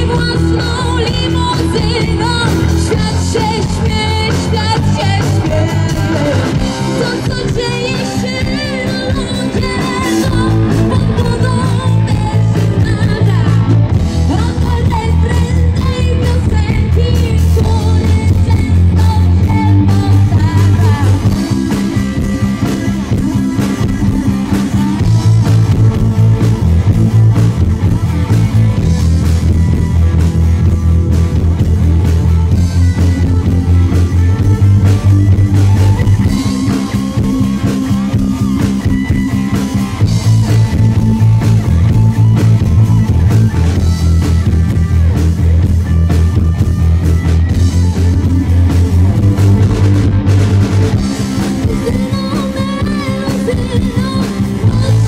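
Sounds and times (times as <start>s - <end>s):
person singing: 0.0s - 26.2s, 49.6s - 55.0s
rock guitar: 0.0s - 55.0s
steady bass line: 0.0s - 55.0s.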